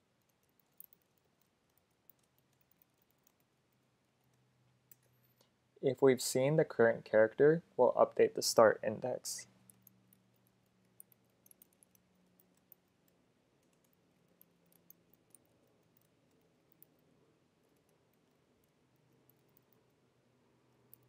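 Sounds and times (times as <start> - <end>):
faint low hum: 0.0 - 21.0
typing on a keyboard: 0.2 - 3.5, 9.7 - 19.9, 20.7 - 21.0.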